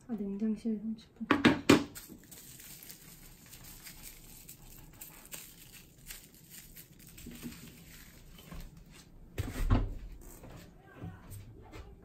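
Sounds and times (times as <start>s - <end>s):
plastic cling film crinkling: 1.9s - 9.2s.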